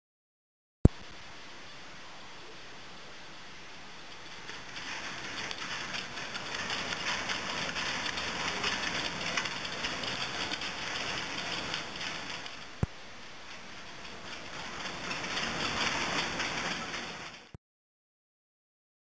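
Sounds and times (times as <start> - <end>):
treadmill belt rushing: 4.0 - 17.6.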